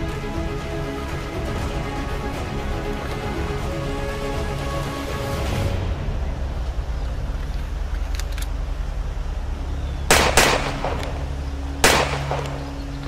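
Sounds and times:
steady low hum: 0.0 - 13.0
pistol shots: 10.1 - 12.8.

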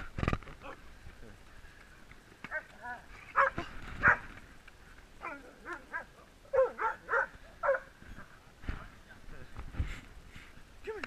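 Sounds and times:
dogs barking and yipping: 2.5 - 4.4, 5.2 - 8.0.

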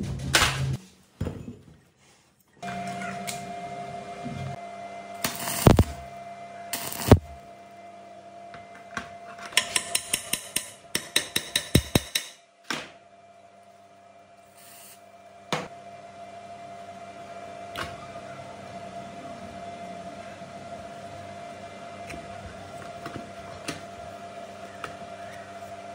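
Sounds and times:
steady hum: 2.6 - 25.9
welding arc crack: 5.2 - 6.1, 6.7 - 7.4.

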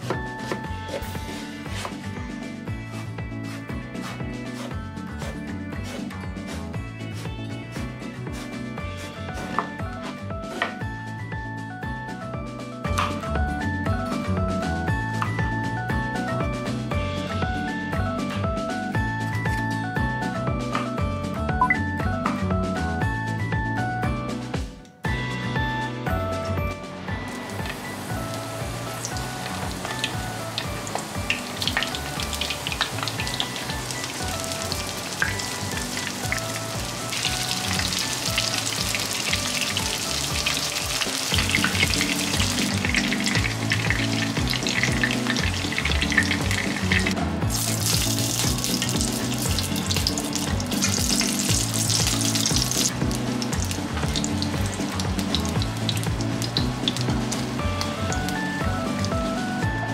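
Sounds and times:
vegetables sizzling in frying pan: 27.4 - 59.1.

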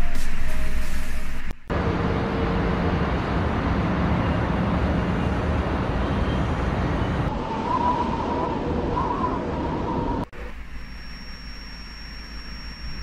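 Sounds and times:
wavering high tone: 10.4 - 13.0.

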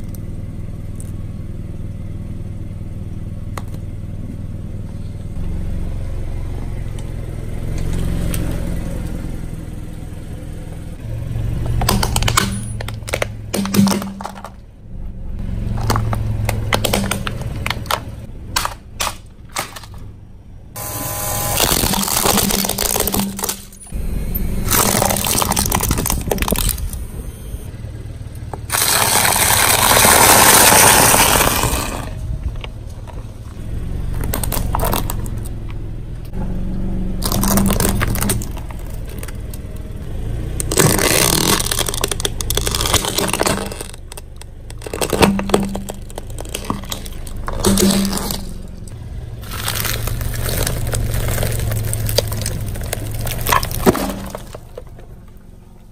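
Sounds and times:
tyre crushing plastic objects: 11.7 - 14.6, 15.7 - 20.1, 21.6 - 23.9, 24.7 - 27.0, 28.7 - 32.2, 34.2 - 35.4, 37.2 - 39.6, 40.6 - 55.2.

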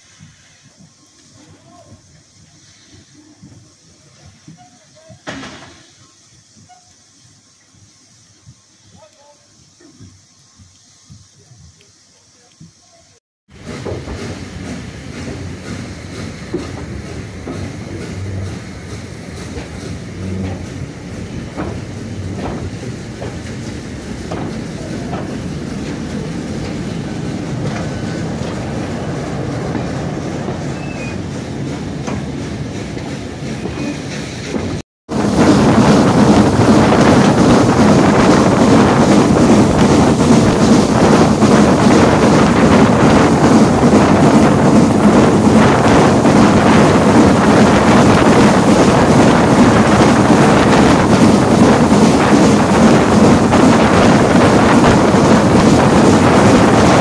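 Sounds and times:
train wheels rushing on rails: 0.0 - 7.4, 12.5 - 57.0
steam locomotive moving slowly: 0.0 - 57.0
wind buffeting microphone: 13.5 - 57.0.

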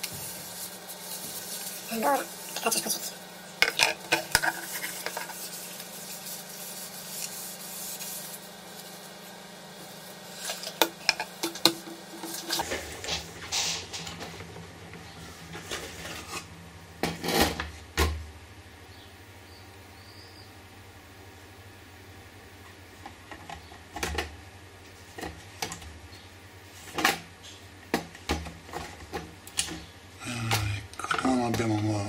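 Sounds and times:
tissue rubbing plastic: 0.0 - 3.3, 4.2 - 10.8.

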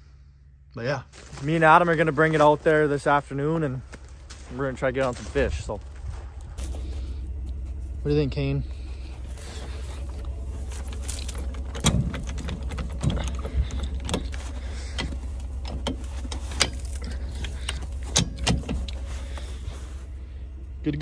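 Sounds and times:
steady low hum: 0.0 - 21.0
safety chains rattling: 10.0 - 19.2
metal clanks from trailer hitch: 10.6 - 19.4.

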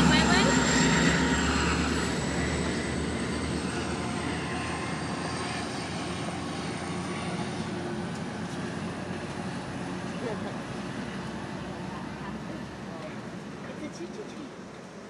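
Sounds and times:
thin high whine: 0.0 - 7.6
passenger train rumbling on tracks: 0.0 - 15.0.

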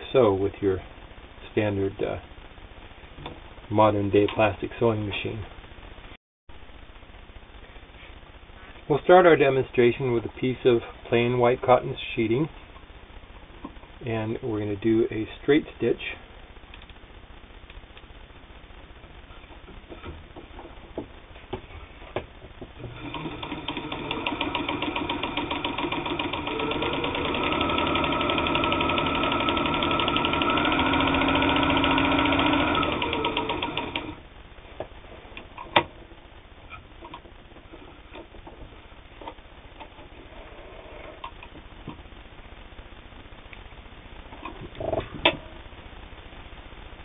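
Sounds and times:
sewing machine running: 22.9 - 34.2.

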